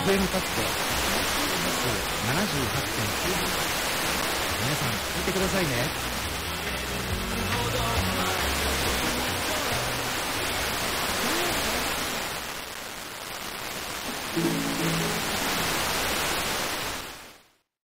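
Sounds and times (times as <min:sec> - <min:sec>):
faint music: 0:00.0 - 0:11.8, 0:14.3 - 0:16.0
radio static hiss: 0:00.0 - 0:17.6.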